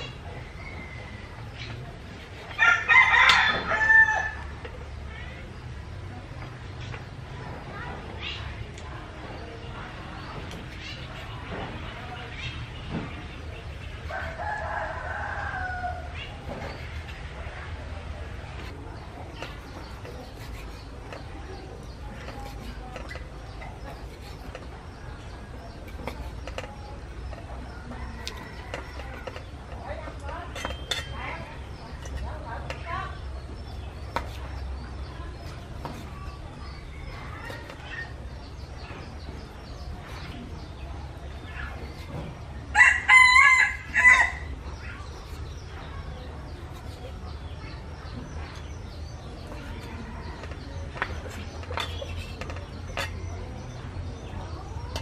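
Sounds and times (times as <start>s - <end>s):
rooster crowing: 2.6s - 4.4s, 14.1s - 16.1s, 42.7s - 44.5s.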